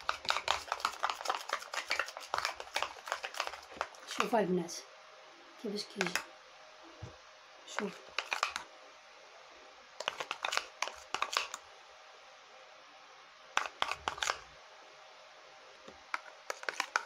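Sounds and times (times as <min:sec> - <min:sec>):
spoon scraping a bowl: 0:07.8 - 0:08.6, 0:10.0 - 0:11.6, 0:13.6 - 0:14.4, 0:16.2 - 0:17.0.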